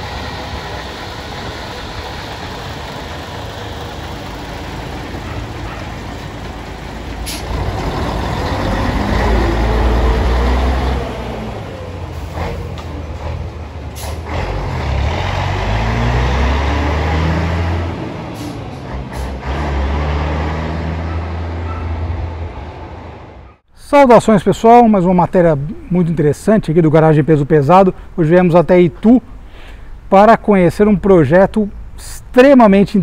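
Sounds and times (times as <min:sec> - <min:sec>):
diesel truck engine revving: 0:00.0 - 0:23.6.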